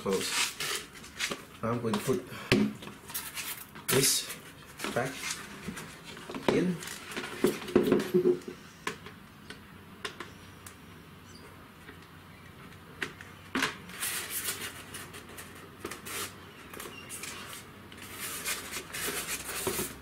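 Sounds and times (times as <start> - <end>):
foam scraping against plastic helmet: 13.9 - 20.0.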